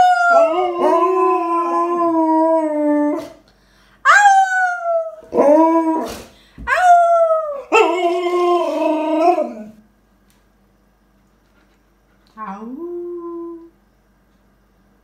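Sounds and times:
dog howling: 0.0s - 3.4s, 4.0s - 9.8s.

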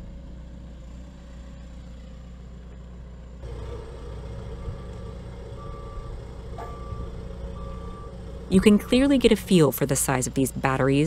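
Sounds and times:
diesel engine running: 0.0s - 11.0s
reversing beep: 4.6s - 10.4s.

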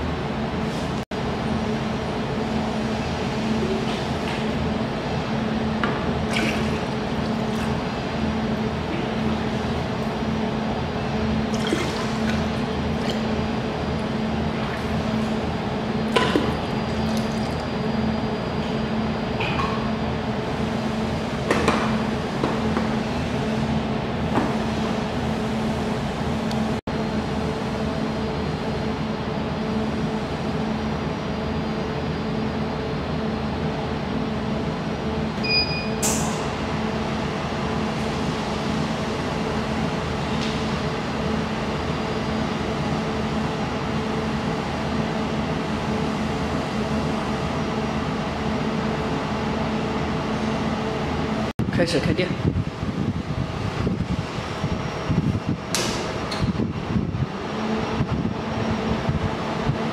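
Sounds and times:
steady machine hum: 0.0s - 59.9s
water pouring and splashing: 6.3s - 7.8s, 11.5s - 13.3s.

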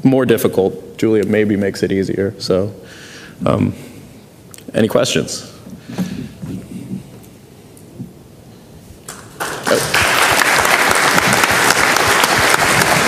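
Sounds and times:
audience applause: 9.1s - 13.0s.

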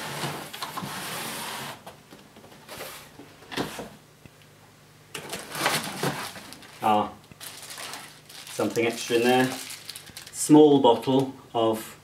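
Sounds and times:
cardboard rustles: 5.2s - 6.8s, 7.4s - 10.4s
cardboard scraping: 5.3s - 6.8s.

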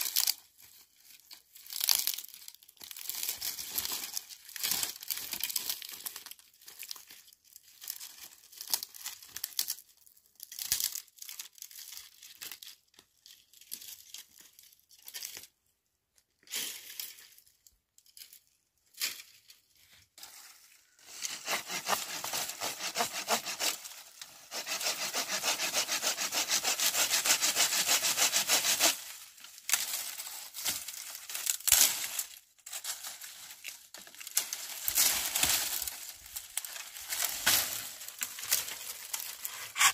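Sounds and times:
hand saw rasping through branch: 21.1s - 29.2s, 36.7s - 39.9s
dry branches snapping: 29.7s - 32.3s.

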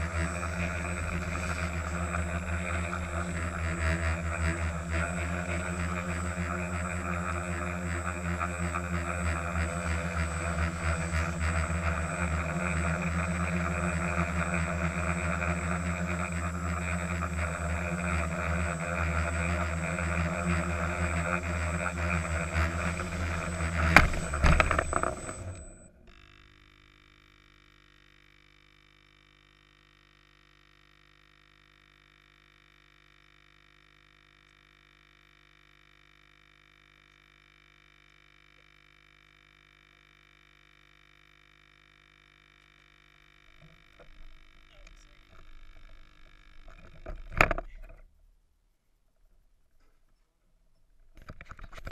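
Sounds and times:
quadcopter motors buzzing: 0.0s - 26.4s
faint steady hum: 0.0s - 51.9s.

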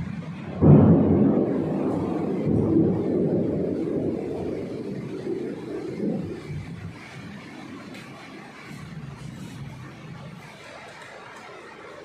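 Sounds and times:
distant thunder rumbling: 0.0s - 12.0s.

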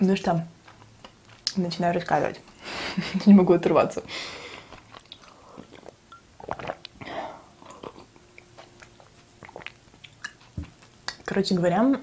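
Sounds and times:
wet mouth clicks and smacks: 4.9s - 7.0s, 8.4s - 11.3s.

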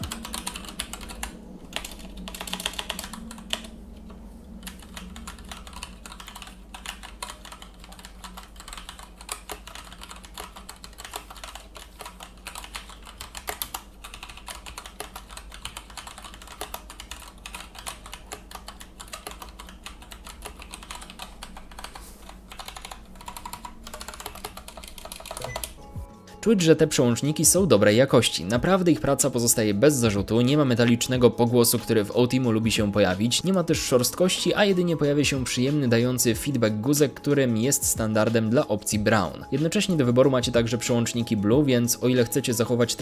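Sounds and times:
mechanical keyboard typing: 0.0s - 3.8s, 4.6s - 25.8s.

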